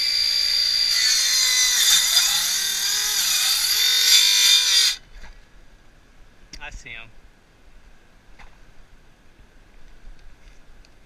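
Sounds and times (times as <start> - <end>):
circular saw cutting wood: 0.0 - 5.0.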